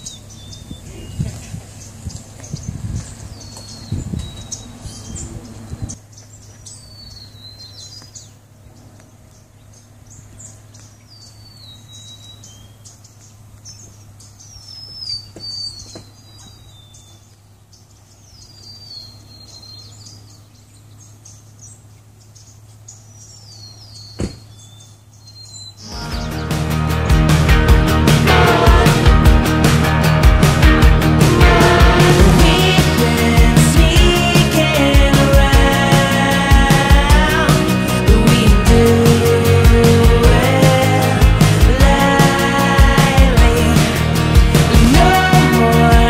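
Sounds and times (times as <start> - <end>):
bird calling: 0.0 - 27.3
low rumbling noise: 25.9 - 46.0.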